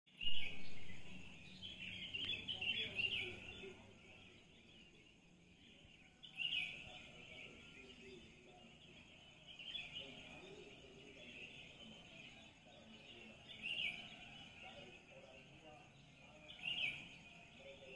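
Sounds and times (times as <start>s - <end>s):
birds chirping and chattering: 0.1s - 17.9s.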